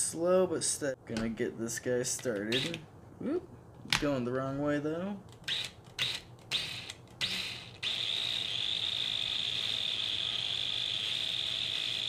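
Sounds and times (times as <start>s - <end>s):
cordless drill motor whining: 5.5s - 12.0s.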